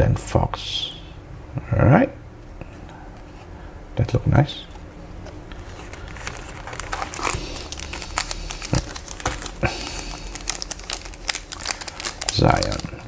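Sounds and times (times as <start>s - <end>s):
foil wrapper crinkling: 5.5s - 13.0s.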